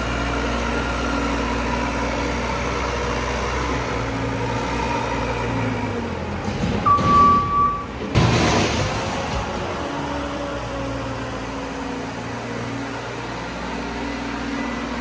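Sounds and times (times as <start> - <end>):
diesel engine under load: 0.0 - 15.0
reversing alarm beep: 6.8 - 8.0.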